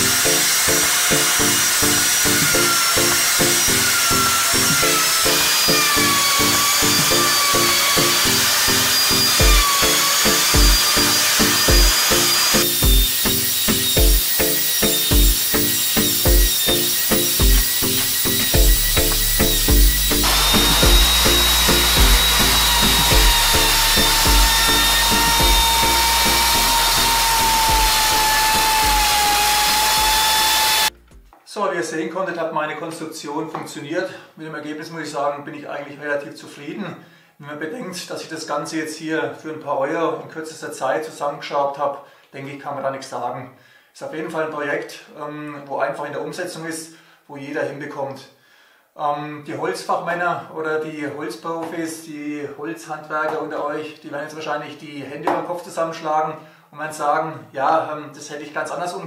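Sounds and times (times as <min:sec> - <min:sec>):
router high whine: 0:00.0 - 0:31.0
background music with beat: 0:09.4 - 0:09.8, 0:10.4 - 0:10.8, 0:11.7 - 0:12.0, 0:12.8 - 0:25.8.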